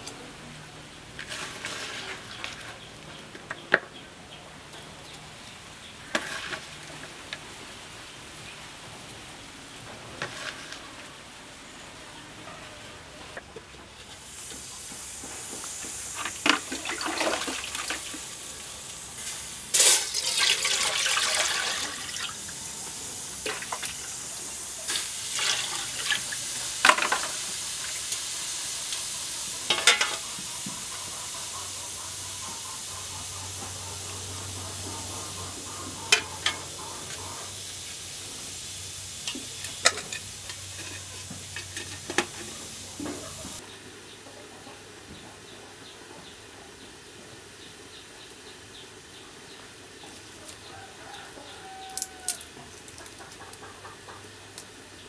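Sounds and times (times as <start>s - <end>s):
water boiling in a pot: 14.0s - 43.6s
metal pot and lid clanking: 29.6s - 30.2s, 39.3s - 42.5s.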